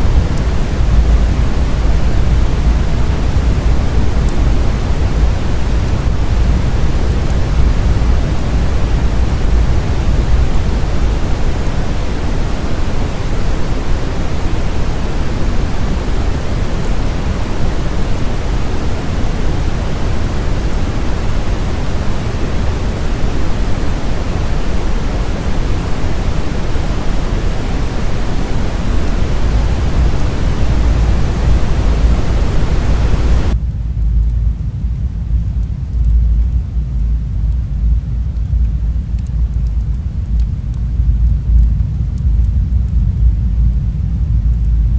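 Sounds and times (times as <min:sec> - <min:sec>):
steady rushing hiss: 0:00.0 - 0:33.7
deep rumble: 0:00.0 - 0:44.9.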